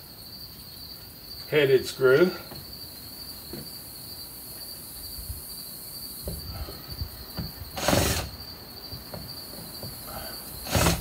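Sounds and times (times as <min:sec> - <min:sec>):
insects trilling: 0:00.0 - 0:11.0
harsh scrape of wood trim: 0:07.7 - 0:08.4, 0:10.6 - 0:11.0.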